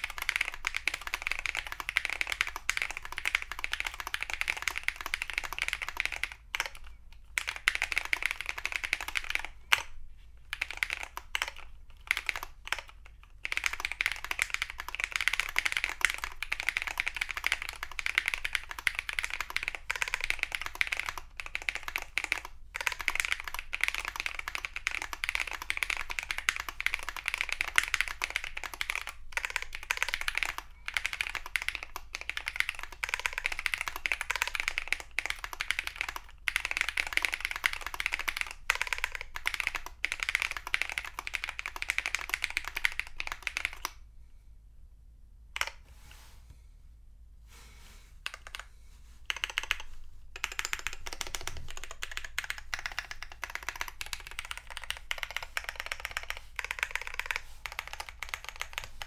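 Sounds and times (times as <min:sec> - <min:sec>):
mechanical keyboard typing: 0:00.0 - 0:44.0, 0:45.6 - 0:45.8, 0:48.2 - 0:48.7, 0:49.3 - 0:59.0.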